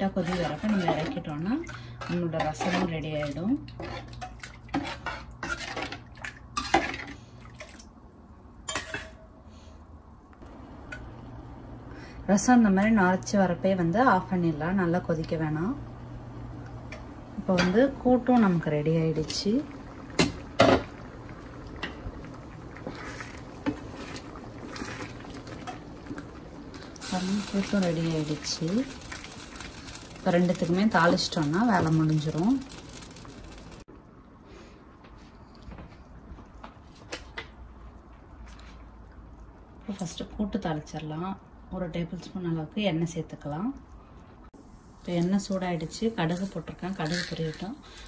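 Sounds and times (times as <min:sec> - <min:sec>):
metal ladle scraping steel pan: 0:00.1 - 0:01.3.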